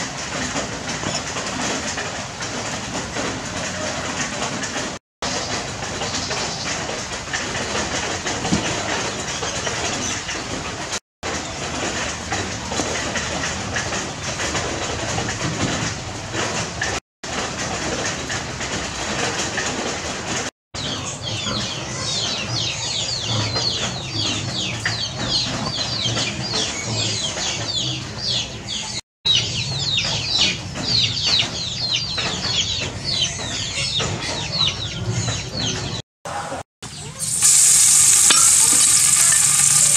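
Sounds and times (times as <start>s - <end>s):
outdoor background noise: 0.0s - 39.9s
birds chirping: 36.9s - 39.9s.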